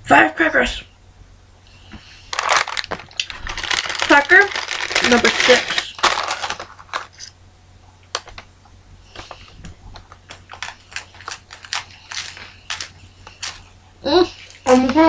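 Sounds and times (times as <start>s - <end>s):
crackers crunching while chewing: 2.3s - 7.4s, 10.0s - 13.7s.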